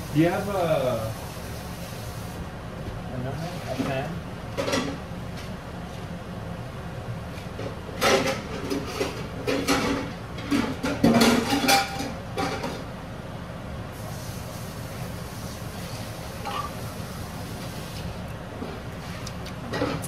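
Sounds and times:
steady low hum: 0.0 - 20.0
pots and pans clattering: 8.0 - 12.8.

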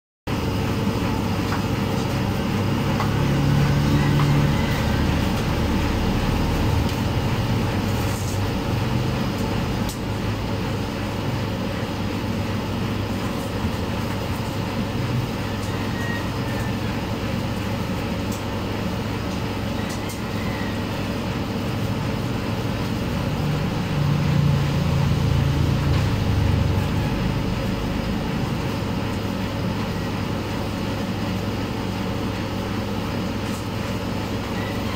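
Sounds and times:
vehicle engines rumbling: 1.4 - 11.6, 21.9 - 30.1.

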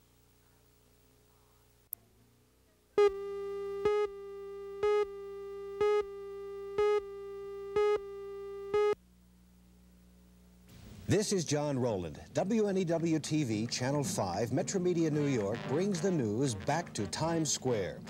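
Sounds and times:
pulsing beep: 3.0 - 9.0
steady electronic tone: 3.0 - 9.0, 14.1 - 18.0.

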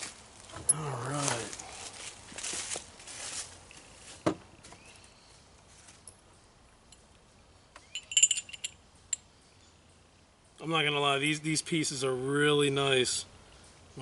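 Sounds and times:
metal clicks and clinks: 7.8 - 9.2.

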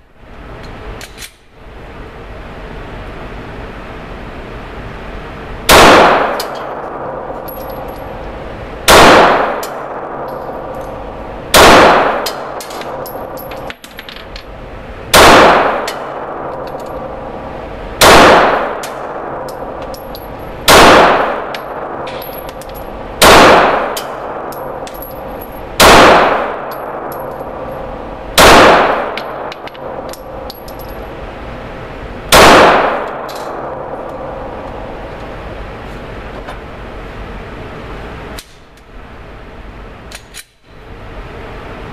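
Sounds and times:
pistol shots echoing indoors: 5.7 - 13.8, 15.1 - 17.4, 18.0 - 31.1, 32.3 - 35.0.

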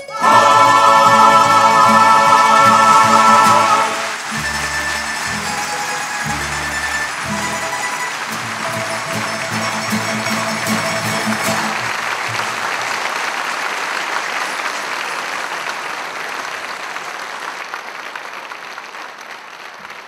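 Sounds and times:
plucked-string folk ensemble: 0.0 - 13.1
audience applauding: 0.0 - 20.0.

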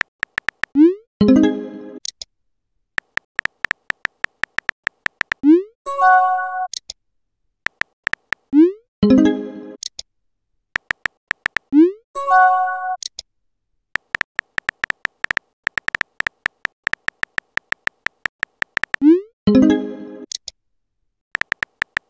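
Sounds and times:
phone keyboard tap clicks: 0.0 - 0.8, 3.0 - 5.4, 7.7 - 8.5, 10.8 - 11.7, 14.0 - 19.0, 21.4 - 22.0.

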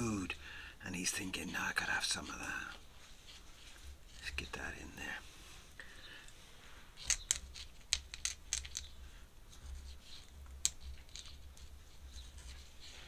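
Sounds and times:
low steady hum: 0.0 - 13.0
scratchy rustle: 1.3 - 4.6, 9.5 - 13.0.

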